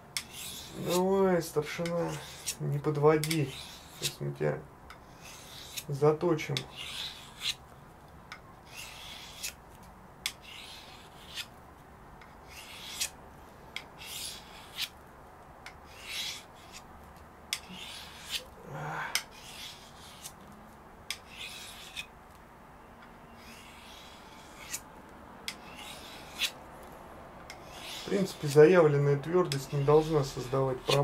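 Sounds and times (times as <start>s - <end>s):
knife rasping on sharpening stone: 0.2s - 1.0s, 1.7s - 2.6s, 3.2s - 4.2s, 5.1s - 5.9s, 6.6s - 7.6s, 8.7s - 9.6s, 10.3s - 11.5s, 12.5s - 13.1s, 17.5s - 18.5s, 19.1s - 20.4s, 21.1s - 22.1s, 23.4s - 24.8s, 25.5s - 26.6s, 27.6s - 28.6s, 29.4s - 31.0s.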